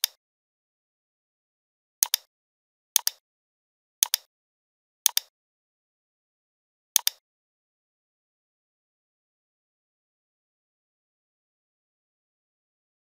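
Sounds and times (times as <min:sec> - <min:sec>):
computer mouse button clicks: 0:02.0 - 0:02.3, 0:03.0 - 0:03.2, 0:04.0 - 0:04.3, 0:05.1 - 0:05.3, 0:07.0 - 0:07.2.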